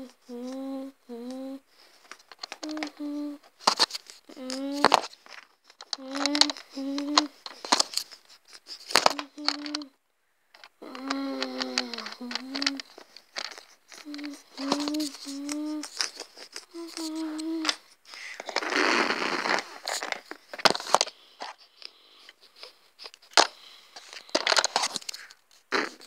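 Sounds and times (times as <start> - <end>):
person humming: 0.0 - 1.7, 2.6 - 3.5, 4.3 - 5.1, 5.9 - 7.4, 9.0 - 10.0, 10.8 - 13.0, 13.9 - 17.9
rustling: 1.4 - 26.0.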